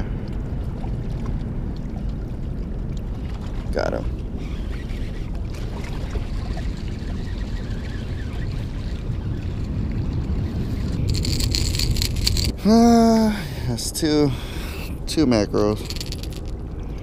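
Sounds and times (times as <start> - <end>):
wind buffeting microphone: 0.0 - 17.0
rapid clicking and rattling: 11.0 - 12.5, 15.8 - 16.5.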